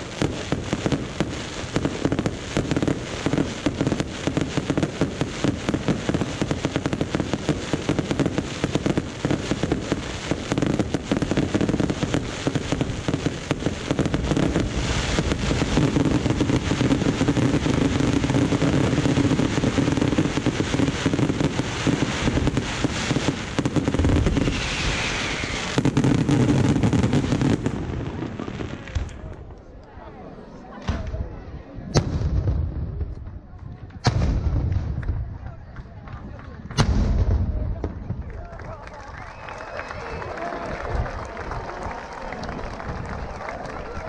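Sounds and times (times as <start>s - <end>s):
deep firework boom: 0.0s - 29.1s, 31.9s - 33.4s, 34.0s - 35.5s, 36.7s - 38.3s
fireworks bangs and crackling: 0.0s - 29.7s, 30.7s - 44.0s.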